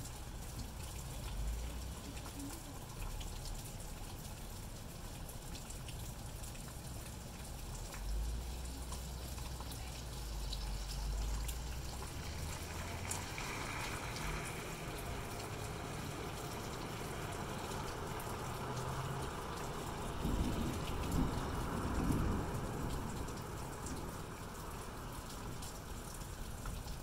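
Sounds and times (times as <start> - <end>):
steady rain falling: 0.0 - 27.0
car tyres hissing on wet road: 8.0 - 27.0.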